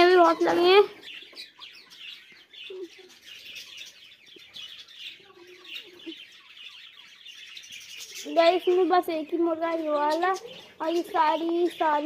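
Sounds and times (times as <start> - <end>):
budgerigars chirping: 0.0 - 12.0.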